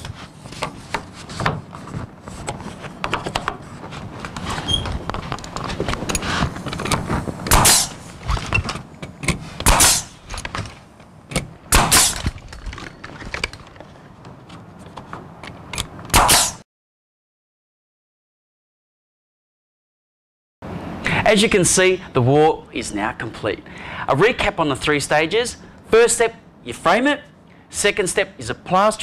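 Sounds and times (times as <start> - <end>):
board being handled: 0.0 - 11.5
nail gun shots with air hiss: 7.4 - 8.1, 9.6 - 10.2, 11.7 - 12.4, 16.1 - 16.6.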